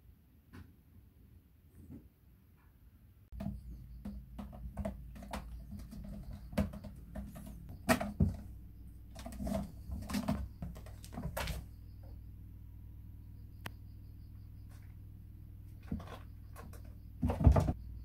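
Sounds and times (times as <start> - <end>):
cat claws scratching carpet: 3.3 - 8.4.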